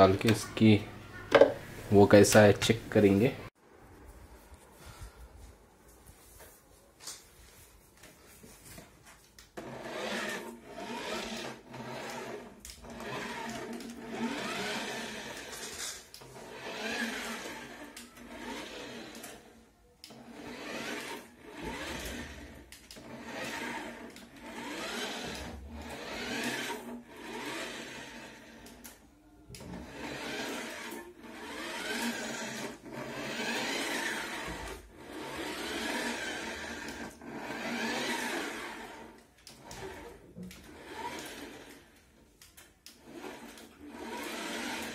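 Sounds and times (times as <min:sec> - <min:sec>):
toy motor whirring: 0:09.4 - 0:44.9.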